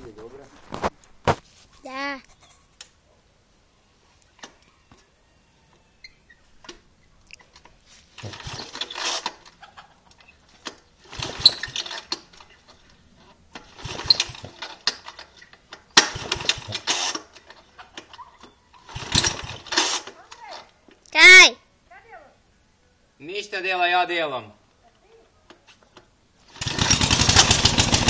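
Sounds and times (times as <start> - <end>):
recoil starter pulls cranking engine: 8.2 - 9.5, 11.0 - 12.6, 13.6 - 18.2, 18.8 - 20.2, 26.4 - 28.0.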